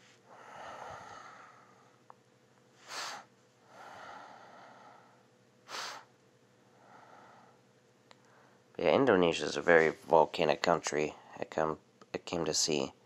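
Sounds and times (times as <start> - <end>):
person breathing: 0.0 - 2.0, 2.8 - 6.1, 6.7 - 7.6, 8.2 - 8.6.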